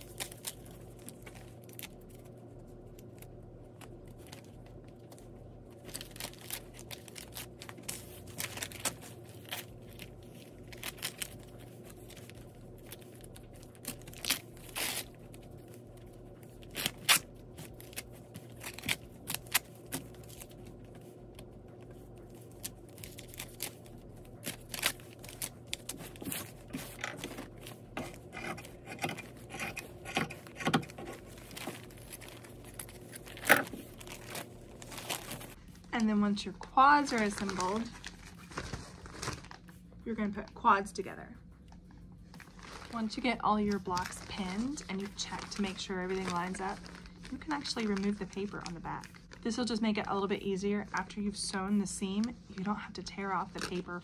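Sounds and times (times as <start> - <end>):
paper rustling and crinkling: 0.0 - 39.8, 42.2 - 49.8
scissors snipping paper and fabric: 22.4 - 34.4.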